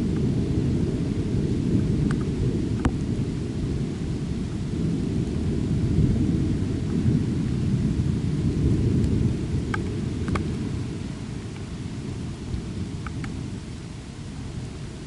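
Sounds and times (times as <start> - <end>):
low rumble of thunder: 0.0 - 15.0
rain: 0.0 - 15.0
sharp tick: 13.0 - 13.4.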